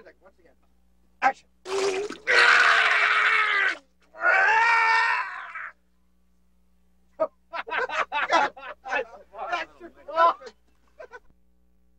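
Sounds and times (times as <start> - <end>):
man screaming: 1.8 - 5.8.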